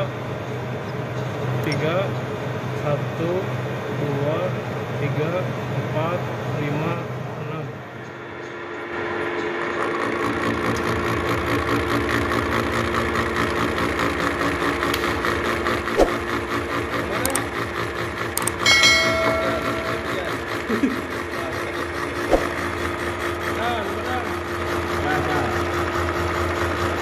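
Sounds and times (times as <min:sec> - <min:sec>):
milling machine hum: 0:08.7 - 0:27.0
metal cutting noise: 0:15.6 - 0:24.7.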